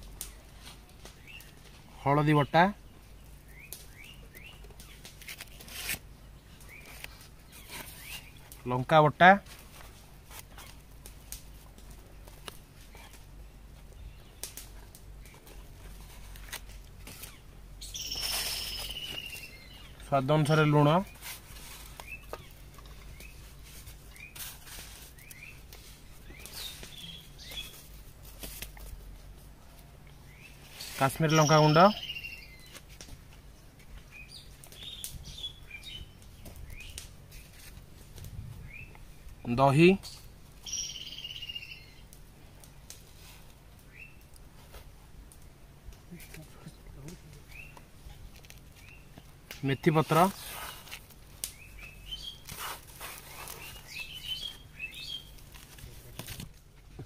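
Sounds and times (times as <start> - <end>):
small birds chirping: 0.0 - 44.4, 46.1 - 55.8
low steady hum: 0.0 - 57.0
faint clicks and rustles: 9.4 - 31.2, 32.6 - 39.4, 42.0 - 57.0
high chirp: 17.8 - 20.0, 31.2 - 32.7, 40.6 - 42.0.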